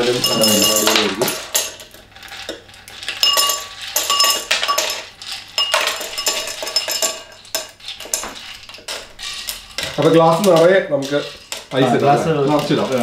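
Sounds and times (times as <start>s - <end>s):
ice cubes clinking into glass: 0.0s - 1.9s, 2.5s - 9.1s.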